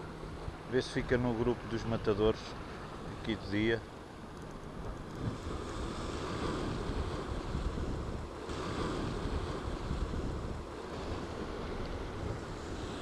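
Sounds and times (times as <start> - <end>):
wind buffeting microphone: 4.7 - 13.0.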